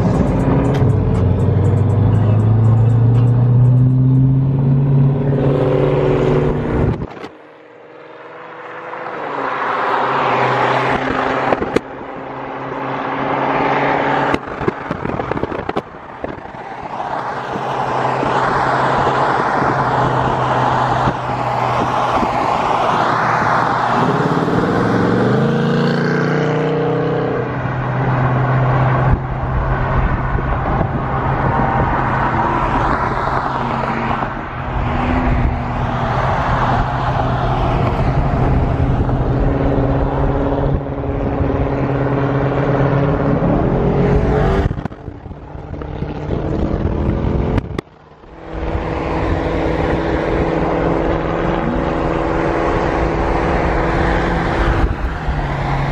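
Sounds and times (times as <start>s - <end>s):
engine revving: 0.0s - 11.8s, 22.2s - 30.2s, 30.9s - 55.9s
car engines droning: 0.0s - 55.9s
wind through open car window: 14.0s - 25.6s, 27.4s - 55.9s.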